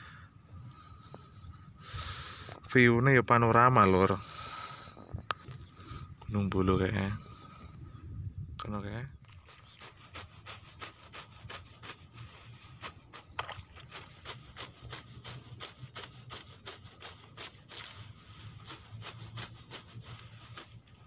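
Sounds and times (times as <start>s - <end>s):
sickle cutting grass: 9.3s - 21.0s.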